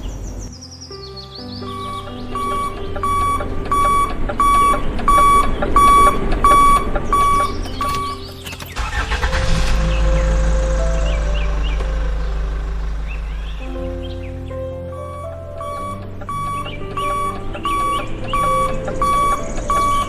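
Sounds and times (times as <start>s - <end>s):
background music: 0.0s - 20.0s
toy truck electronic beeping: 1.7s - 9.9s, 14.9s - 20.0s
low hum: 1.8s - 20.0s.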